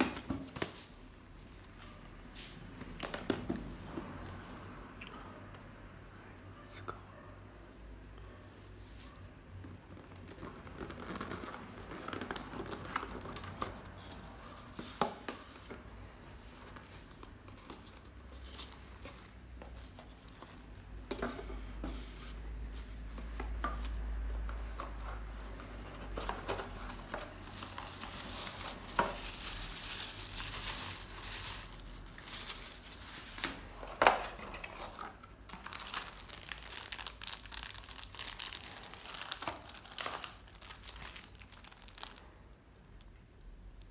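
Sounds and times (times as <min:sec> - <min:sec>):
plastic bags crinkling: 0:26.0 - 0:42.3.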